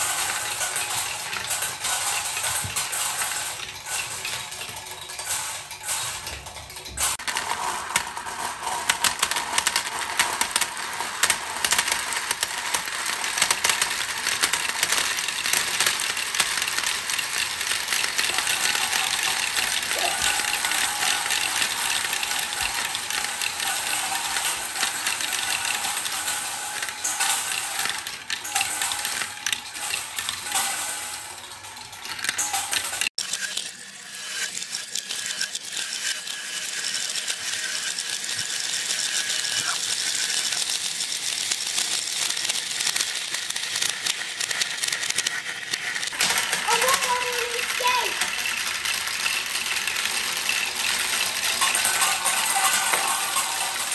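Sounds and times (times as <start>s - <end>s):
glass marbles clattering in plastic funnel: 11.2s - 53.9s.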